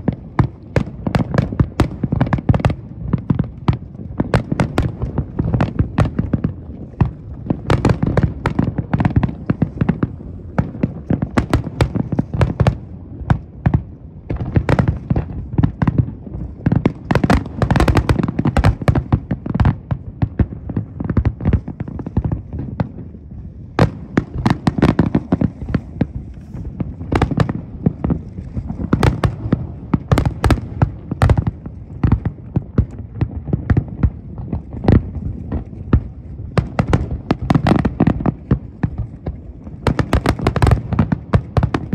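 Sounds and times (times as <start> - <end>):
fireworks booming and crackling: 0.0 - 41.9.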